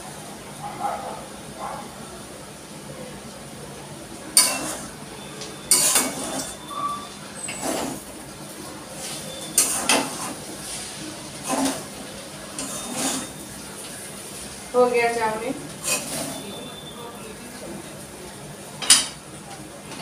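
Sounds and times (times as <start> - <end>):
metal spatula scraping a wok: 4.4 - 4.9, 5.7 - 8.0, 9.0 - 11.9, 12.6 - 13.4, 15.8 - 16.5.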